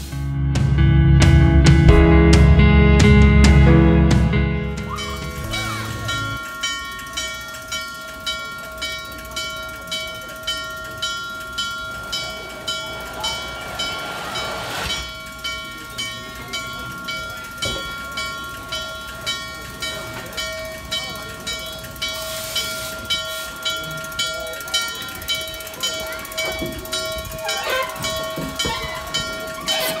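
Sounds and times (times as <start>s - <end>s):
locomotive bell ringing: 3.7s - 30.0s
steam hissing: 11.6s - 16.2s, 22.0s - 24.0s.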